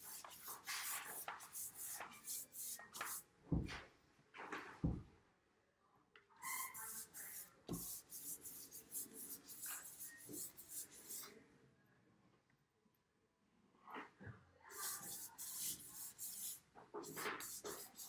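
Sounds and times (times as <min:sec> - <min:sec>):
paintbrush scratching on paper: 0:00.0 - 0:03.2, 0:06.4 - 0:11.3, 0:14.7 - 0:18.0.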